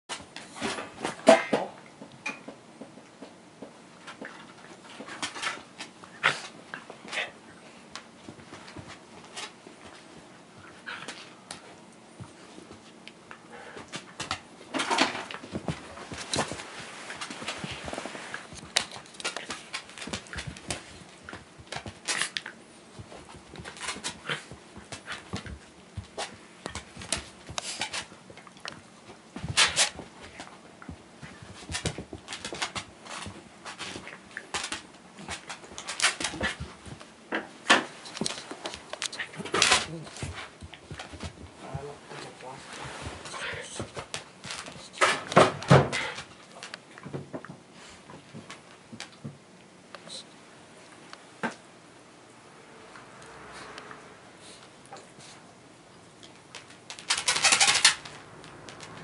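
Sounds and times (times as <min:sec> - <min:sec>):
dogs scuffling: 0:07.9 - 0:13.0, 0:13.6 - 0:49.4, 0:53.4 - 0:59.0.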